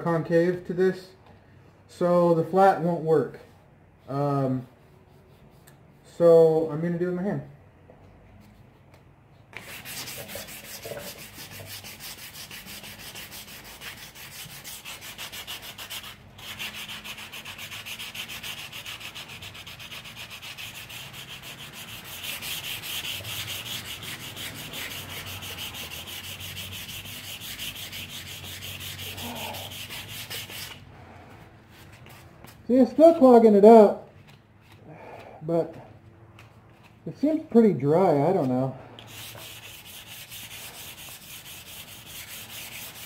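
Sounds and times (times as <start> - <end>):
sandpaper rubbing by hand: 9.6 - 30.8, 38.3 - 43.0.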